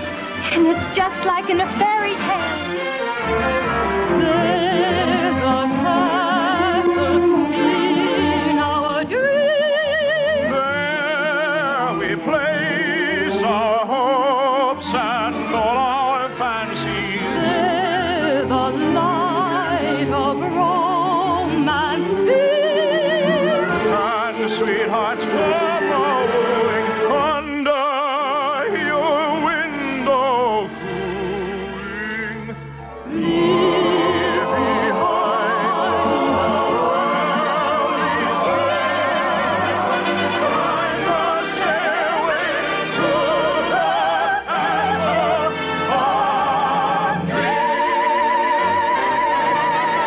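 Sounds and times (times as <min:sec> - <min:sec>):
operatic singing: 0:00.0 - 0:50.0
orchestral accompaniment: 0:00.0 - 0:50.0.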